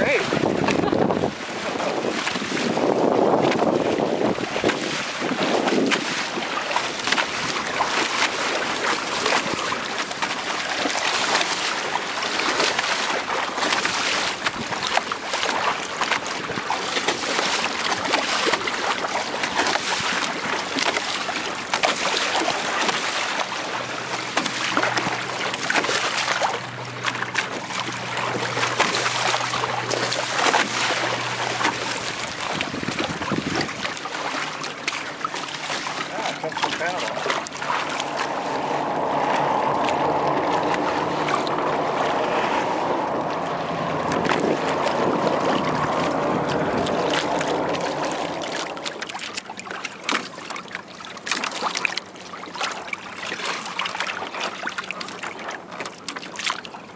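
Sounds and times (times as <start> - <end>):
wind on microphone: 0.0 - 10.3, 13.8 - 20.6, 23.6 - 34.2, 36.1 - 49.2
water rushing along hulls: 0.0 - 56.9.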